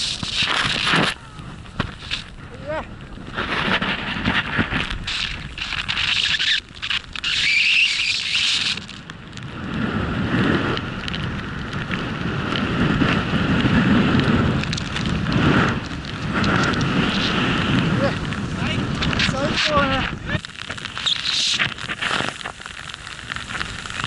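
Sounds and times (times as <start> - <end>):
snowboard hissing through snow: 0.0 - 2.3, 3.3 - 8.9, 12.7 - 24.0
wind noise on microphone: 0.0 - 24.0.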